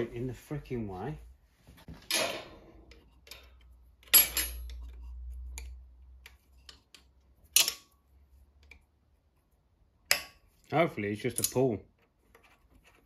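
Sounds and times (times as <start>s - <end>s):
metal tools clanking on metal: 2.0s - 4.8s, 6.7s - 8.0s, 11.2s - 11.8s.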